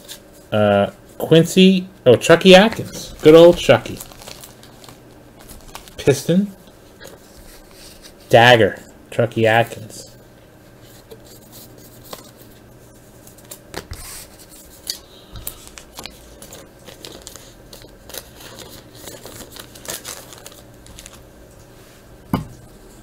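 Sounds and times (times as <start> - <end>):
faint steady hum: 0.0 - 23.0
plastic card sleeves rustling: 2.3 - 8.2, 10.9 - 21.2.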